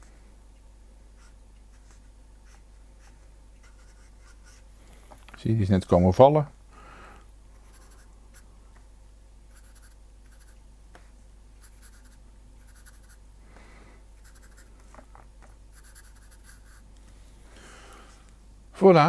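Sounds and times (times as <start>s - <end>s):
marker scratching on paper: 1.2s - 4.6s, 7.6s - 8.4s, 9.5s - 10.6s, 11.6s - 13.2s, 14.2s - 14.7s, 15.7s - 16.8s.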